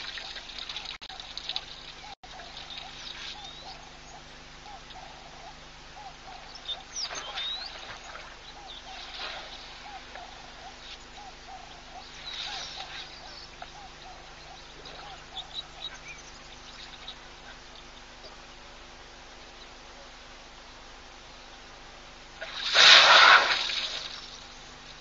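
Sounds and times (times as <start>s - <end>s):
high bird chirps and whistles: 6.0s - 7.8s.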